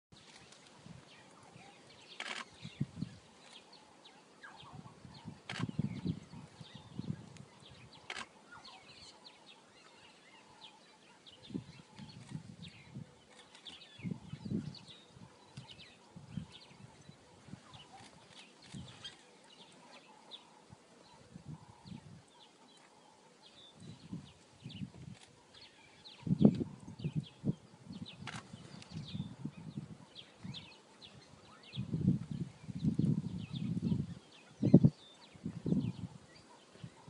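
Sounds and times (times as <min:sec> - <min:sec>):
small birds chirping: 0:00.2 - 0:37.0
sharp clicks: 0:08.0 - 0:08.3.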